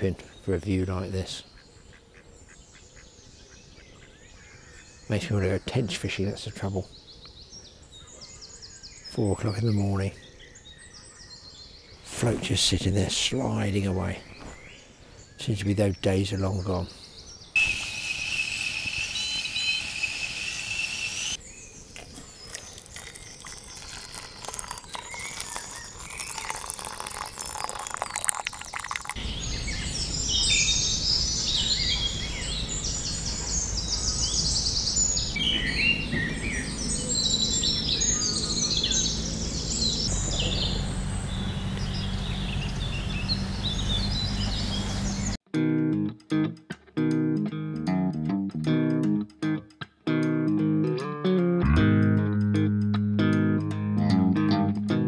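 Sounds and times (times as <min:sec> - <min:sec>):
songbirds singing: 0:00.0 - 0:45.4
steady high tone: 0:17.6 - 0:21.4.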